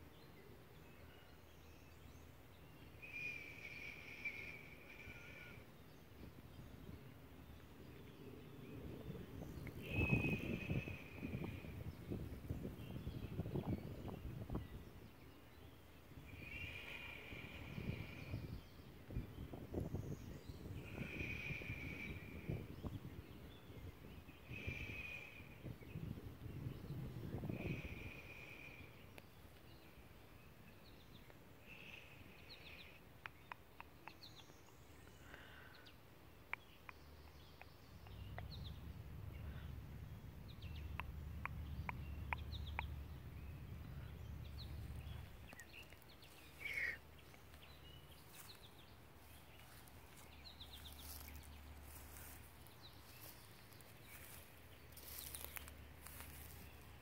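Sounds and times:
bird chirps: 0.2 - 5.7, 7.6 - 18.8, 30.7 - 57.0
low rumble: 37.9 - 46.6.

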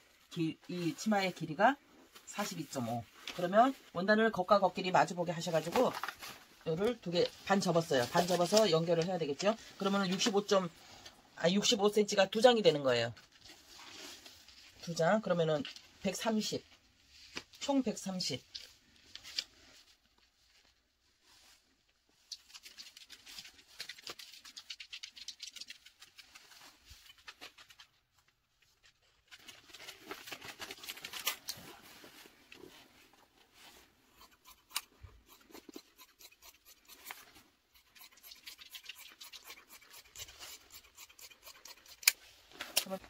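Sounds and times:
paper and cloth rustling: 0.0 - 11.0, 12.9 - 34.1
fabric shears snipping: 34.2 - 43.0.

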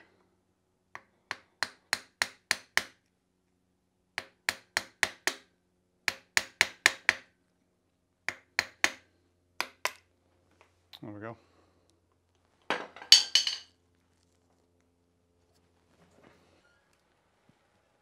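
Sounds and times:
small hammer tapping metal pick: 1.0 - 3.0, 4.2 - 7.3, 8.2 - 9.0.

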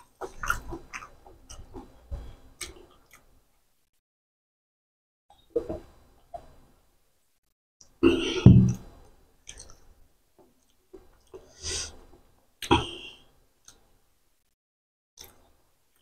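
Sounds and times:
mouth smacks and clicks while eating: 0.0 - 2.0, 2.6 - 3.4, 9.4 - 11.5.

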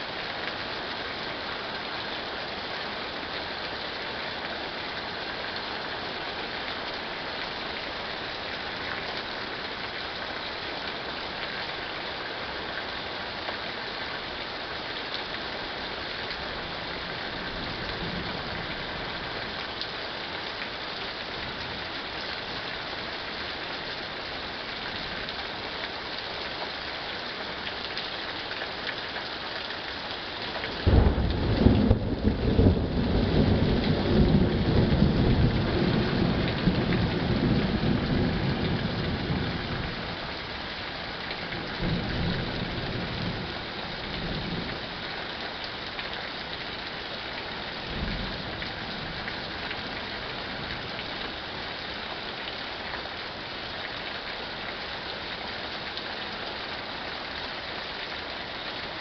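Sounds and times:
rain falling: 0.0 - 59.0
thunder: 30.8 - 36.1.

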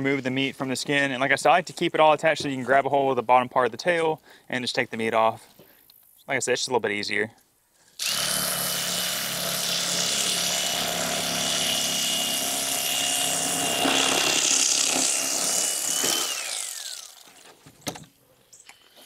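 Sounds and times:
electric knife motor whine: 8.0 - 17.4.

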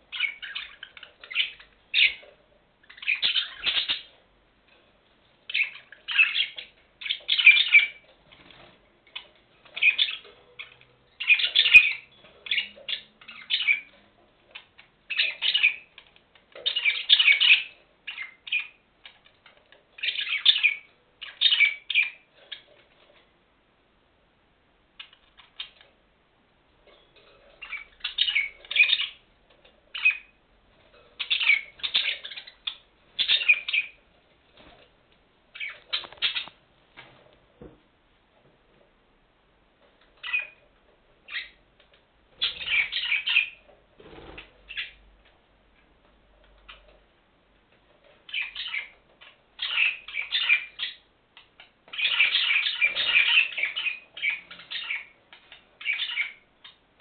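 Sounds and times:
budgerigars chirping: 0.1 - 4.2, 5.5 - 8.6, 9.2 - 19.4, 20.0 - 22.7, 27.6 - 29.2, 29.9 - 30.4, 31.2 - 34.0, 35.5 - 36.6, 40.2 - 40.6, 41.3 - 41.6, 42.4 - 45.0, 48.3 - 56.8.

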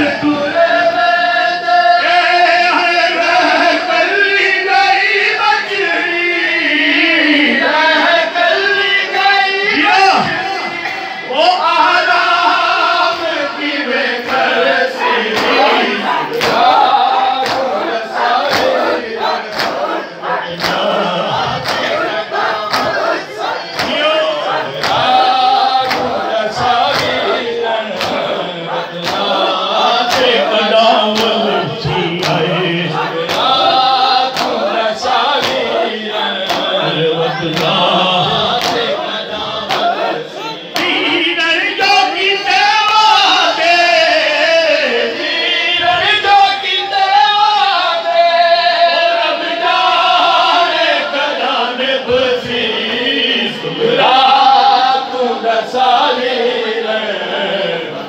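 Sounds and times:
men chanting in chorus: 0.0 - 58.0
hands striking chests: 22.7 - 23.1, 38.5 - 39.0.

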